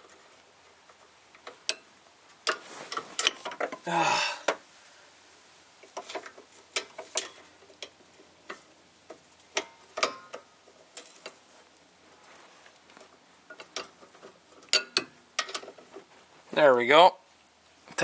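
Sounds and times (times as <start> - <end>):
wrench clicking on bolt: 9.6 - 10.4.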